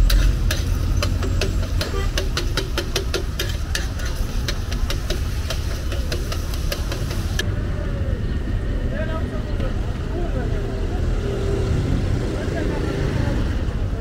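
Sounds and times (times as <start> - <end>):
metal spatula scraping griddle: 0.0 - 7.4
oil sizzling: 0.0 - 7.4.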